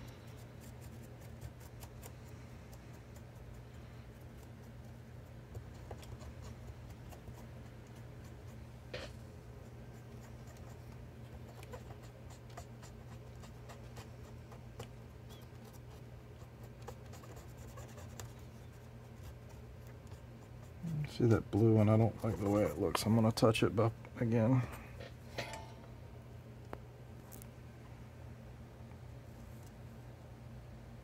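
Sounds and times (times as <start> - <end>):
cotton swab scratching circuit board: 0.3 - 22.8.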